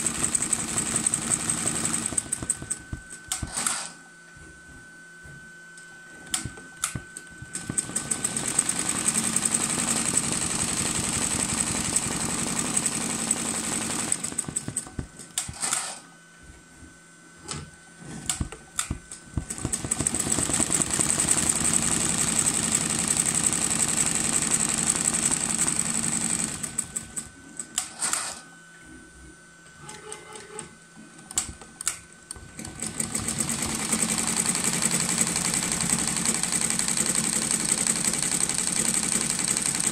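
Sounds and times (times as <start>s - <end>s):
embroidery machine stitching rattle: 0.0s - 2.6s, 7.6s - 14.9s, 19.5s - 27.2s, 32.6s - 39.9s.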